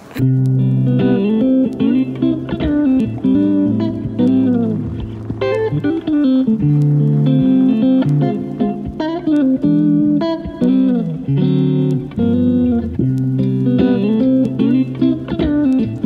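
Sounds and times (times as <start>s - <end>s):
background music melody: 0.1s - 16.0s.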